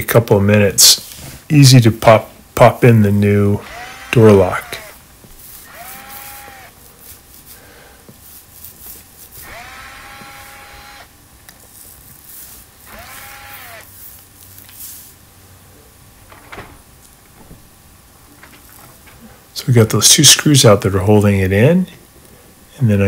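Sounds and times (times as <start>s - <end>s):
cordless drill motor whining: 3.6s - 6.8s, 9.4s - 11.1s, 12.8s - 13.9s.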